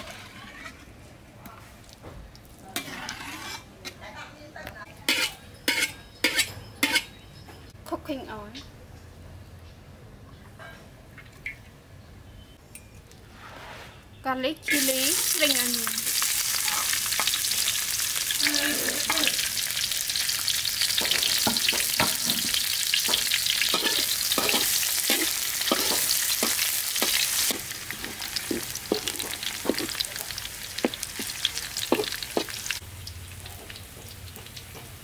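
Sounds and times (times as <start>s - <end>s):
metal spatula scraping wok: 0.0s - 1.1s, 2.7s - 4.2s, 5.0s - 7.2s, 13.3s - 19.5s, 20.1s - 32.8s
food sizzling in hot oil: 14.6s - 35.0s.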